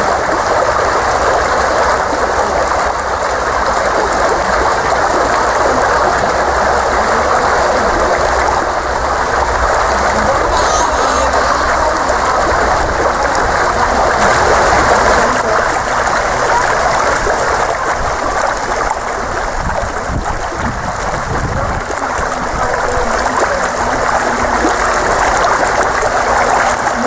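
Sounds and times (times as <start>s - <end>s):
swimmer splashing: 0.0s - 27.0s
water rushing in pool: 0.0s - 27.0s.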